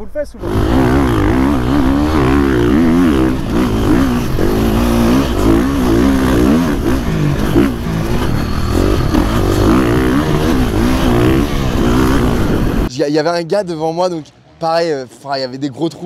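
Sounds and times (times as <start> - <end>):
motocross bike engine revving: 0.4 - 12.9.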